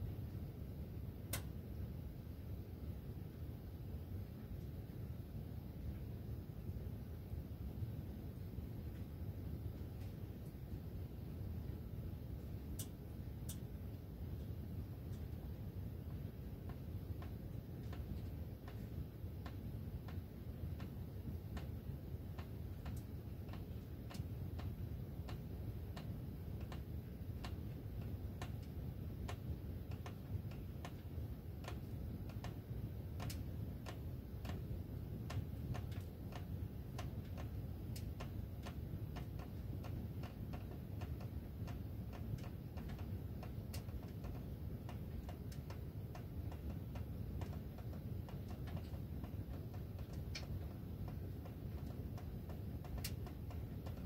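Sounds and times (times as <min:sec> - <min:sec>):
steady low rumble: 0:00.0 - 0:54.0.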